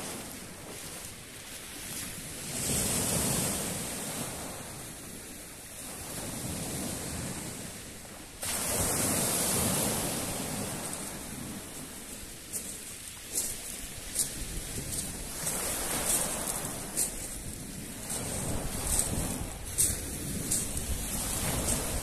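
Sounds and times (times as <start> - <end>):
waves breaking on pebble shore: 0.0 - 22.0
water washing back over stones: 8.4 - 11.4.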